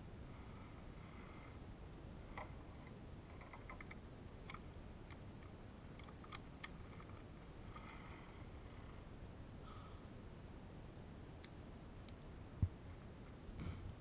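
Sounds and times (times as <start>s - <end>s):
low steady background rumble: 0.0s - 14.0s
faint sharp clicks and ticks: 2.3s - 8.0s, 11.4s - 13.4s.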